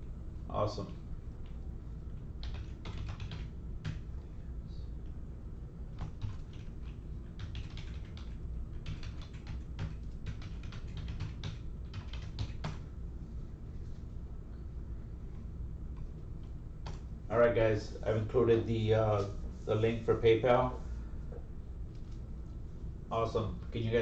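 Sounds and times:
low steady hum: 0.0s - 24.0s
keyboard typing clicks: 2.4s - 4.0s, 6.0s - 12.8s.

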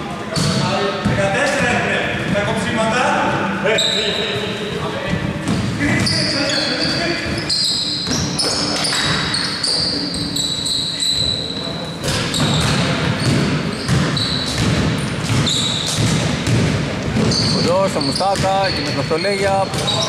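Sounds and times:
sneaker squeaks: 0.3s - 2.4s, 3.6s - 20.0s
basketball bouncing on court: 0.3s - 2.5s, 5.2s - 6.5s, 7.2s - 10.3s, 12.0s - 20.0s.

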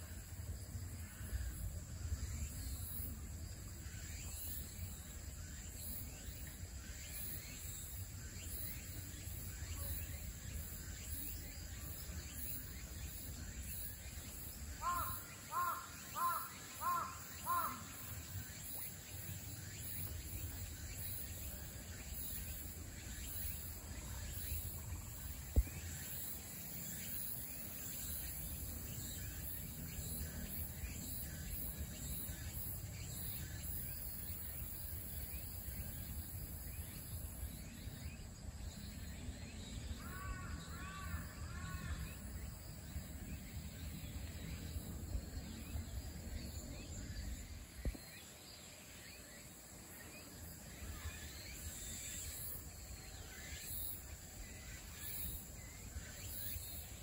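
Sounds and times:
crow cawing: 14.8s - 17.9s.

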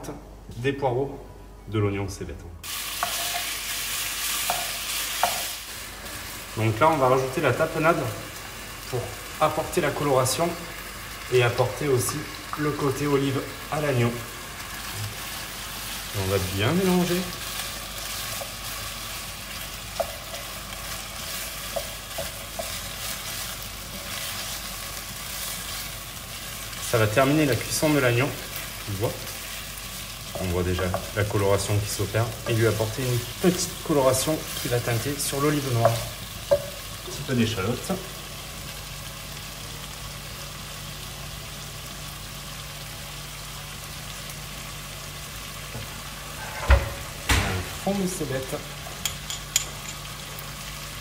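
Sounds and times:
meat sizzling in a pan: 2.6s - 51.0s.

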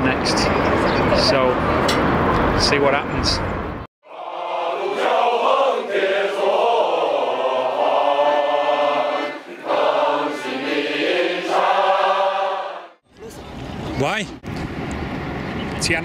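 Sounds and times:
choir holding long notes: 4.0s - 13.0s.

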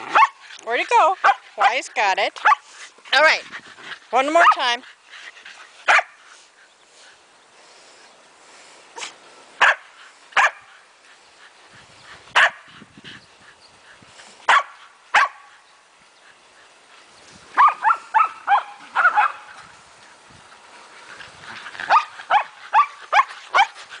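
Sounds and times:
dogs barking excitedly: 0.0s - 6.4s, 9.0s - 10.8s, 12.3s - 12.8s, 14.4s - 15.6s, 17.5s - 19.6s, 21.1s - 24.0s.

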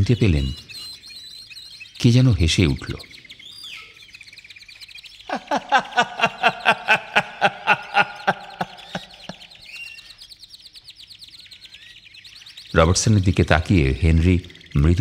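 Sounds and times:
birds chirping: 0.0s - 15.0s
person laughing: 5.3s - 9.8s.

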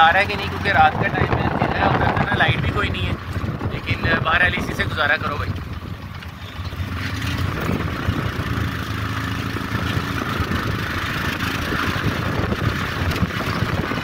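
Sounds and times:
road noise: 0.0s - 14.0s
small engine running: 0.0s - 14.0s.

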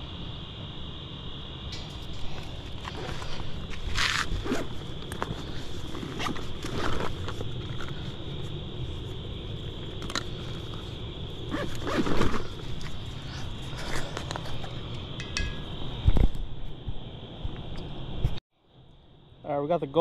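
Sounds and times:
insects trilling: 0.0s - 20.0s
fishing gear rustling and scraping: 1.9s - 15.0s.

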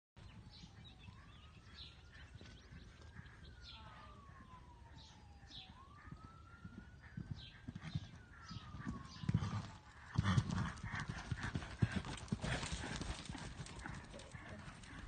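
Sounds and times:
birds chirping: 0.2s - 11.5s, 12.6s - 15.0s
faint siren wailing: 0.2s - 15.0s
horse hoofbeats on sand: 9.3s - 15.0s.

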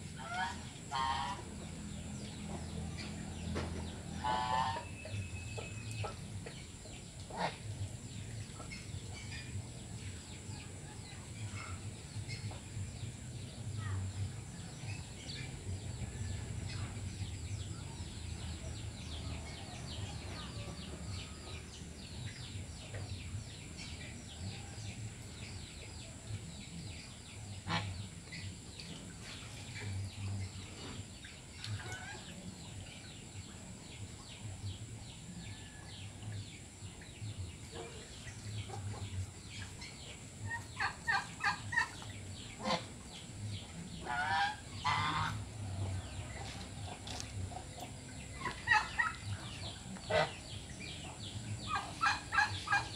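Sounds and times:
geese honking: 0.2s - 1.5s, 4.2s - 5.2s, 42.6s - 43.0s, 44.0s - 47.2s, 48.4s - 50.4s
geese dabbling in muddy water: 0.2s - 1.6s, 3.2s - 9.5s, 27.5s - 29.9s, 31.5s - 32.3s, 37.8s - 52.9s.

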